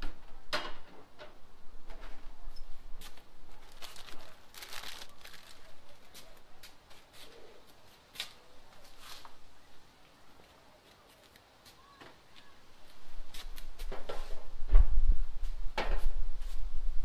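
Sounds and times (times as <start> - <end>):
plastic packages crinkling: 3.6 - 6.4.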